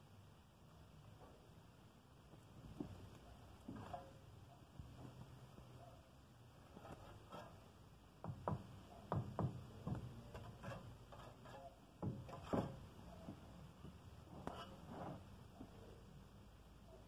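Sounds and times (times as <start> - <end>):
trowel scraping mortar: 6.7 - 7.6, 10.3 - 12.8
trowel knocking on bricks: 8.2 - 12.9.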